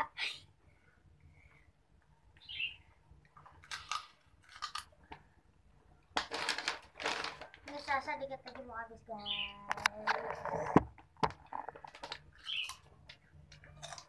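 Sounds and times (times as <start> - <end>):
crunchy snack being chewed: 3.3 - 5.0, 13.5 - 14.0.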